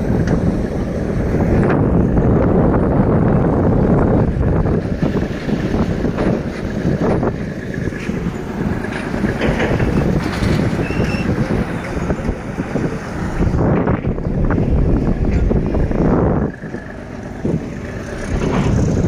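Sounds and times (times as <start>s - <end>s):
heavy diesel machinery rumbling: 0.0s - 19.0s
wind buffeting microphone: 0.0s - 19.0s.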